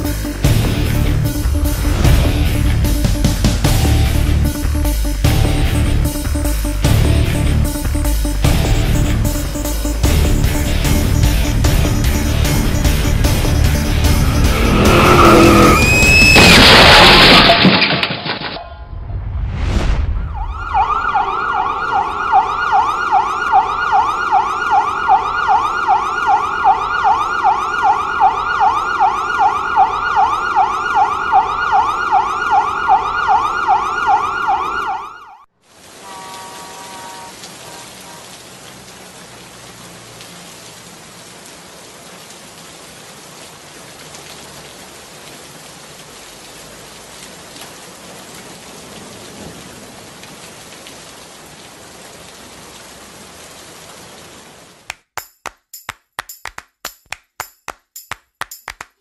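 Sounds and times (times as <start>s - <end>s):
rain falling on wet surface: 0.0s - 18.6s, 20.2s - 35.0s, 35.6s - 55.0s
emergency siren yelping: 14.1s - 16.5s, 20.2s - 35.5s.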